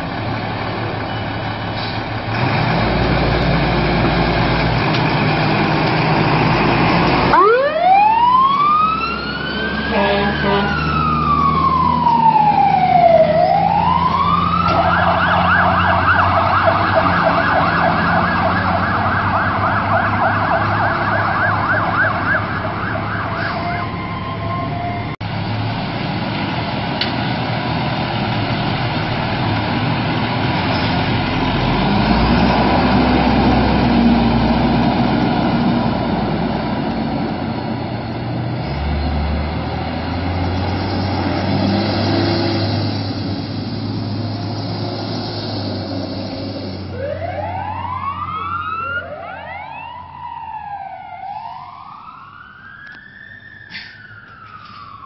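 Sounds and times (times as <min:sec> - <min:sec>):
diesel engine: 0:00.0 - 0:55.0
fire truck siren wailing and yelping: 0:04.7 - 0:25.2, 0:39.4 - 0:55.0.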